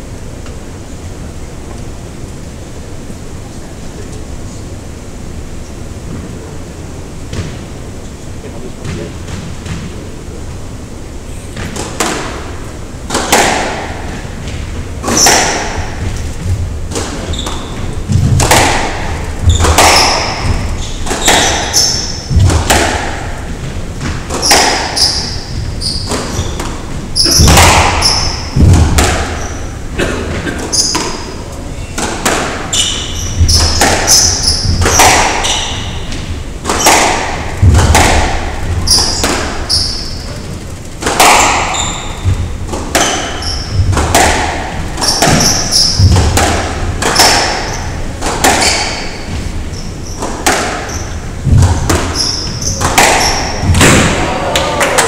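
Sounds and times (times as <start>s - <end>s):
squash ball cracking off racquets: 11.5s - 55.0s
ball thudding against walls: 11.6s - 29.6s, 32.0s - 40.1s, 41.0s - 49.6s, 50.2s - 54.3s
shoes squeaking on wooden floor: 14.1s - 22.7s, 23.5s - 37.0s, 38.6s - 40.8s, 41.5s - 44.2s, 44.9s - 46.3s, 47.0s - 54.4s.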